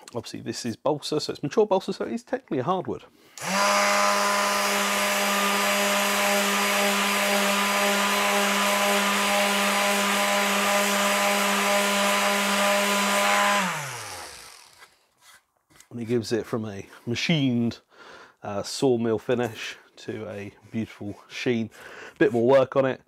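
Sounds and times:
electric sander sanding wood: 3.4s - 15.0s.

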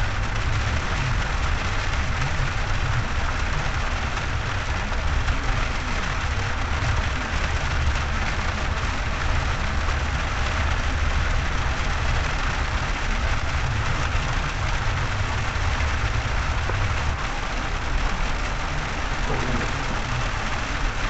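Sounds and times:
car driving on wet road: 0.0s - 21.0s
heavy rain on car roof: 0.0s - 21.0s.

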